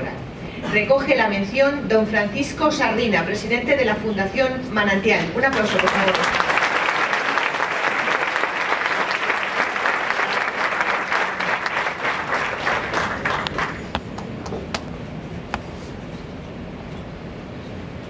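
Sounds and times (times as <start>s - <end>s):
audience applauding: 5.5s - 14.9s.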